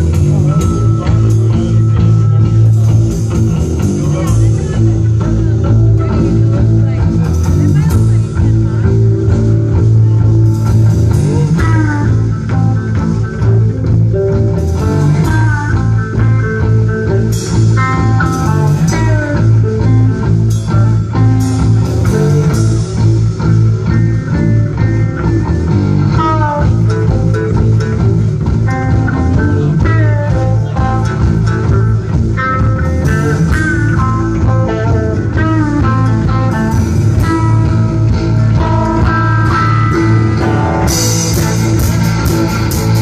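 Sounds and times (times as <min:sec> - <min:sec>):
electric guitar lead lines: 0:00.0 - 0:43.0
live rock band playing: 0:00.0 - 0:43.0.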